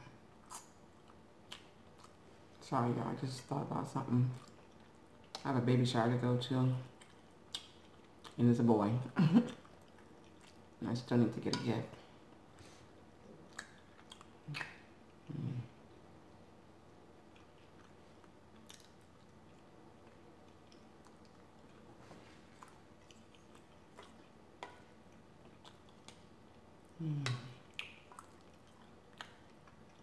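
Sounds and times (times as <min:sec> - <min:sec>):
chewing food: 0:00.0 - 0:15.6, 0:16.8 - 0:30.0
wet mouth sounds: 0:13.3 - 0:15.6, 0:26.9 - 0:30.0
low voice hum: 0:14.5 - 0:15.8, 0:26.9 - 0:27.7.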